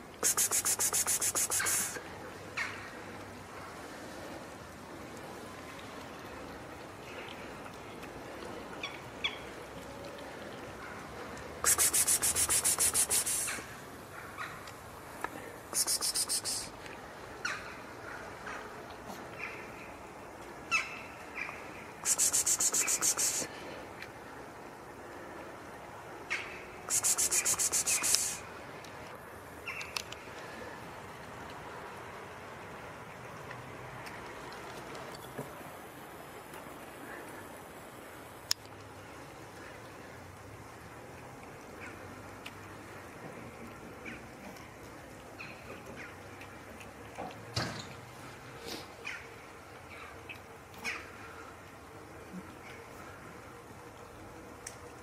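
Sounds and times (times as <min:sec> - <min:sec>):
faint outdoor noise: 0:00.0 - 0:55.0
steady background hiss: 0:00.0 - 0:55.0
short high chirps: 0:15.8 - 0:16.7, 0:22.0 - 0:23.5, 0:26.9 - 0:28.4.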